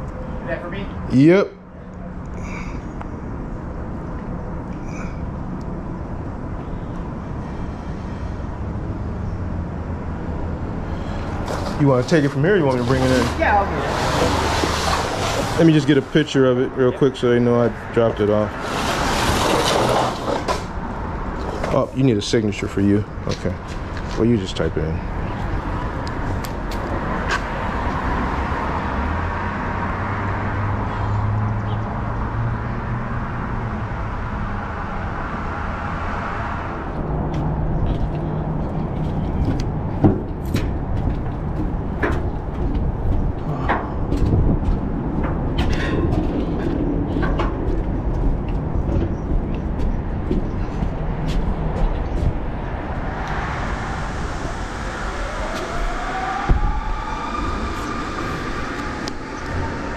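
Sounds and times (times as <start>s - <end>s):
truck engine and road noise: 0.0s - 59.9s
sharp knocks and clatters: 39.1s - 52.4s.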